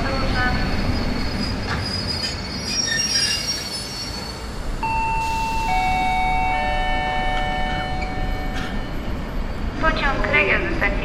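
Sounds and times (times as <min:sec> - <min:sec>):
low rumble of train: 0:00.0 - 0:11.0
descending three-note chime: 0:04.8 - 0:09.0.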